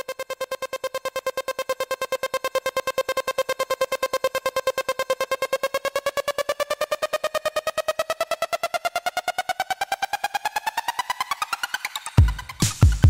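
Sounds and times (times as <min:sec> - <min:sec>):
pulsing synthesizer tone: 0:00.0 - 0:12.6.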